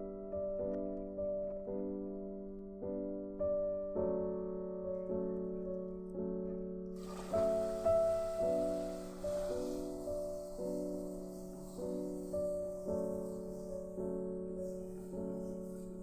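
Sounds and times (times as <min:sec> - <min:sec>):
piano music: 0:00.0 - 0:16.0
hissing sizzle: 0:07.0 - 0:16.0.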